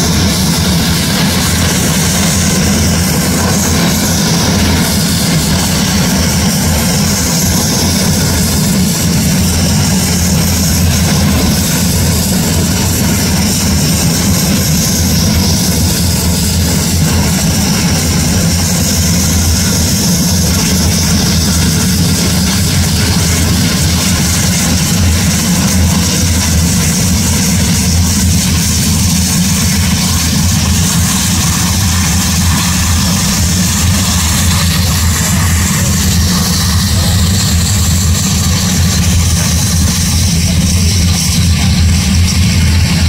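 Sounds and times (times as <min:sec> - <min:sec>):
turboprop engines running: 0:00.0 - 0:43.0.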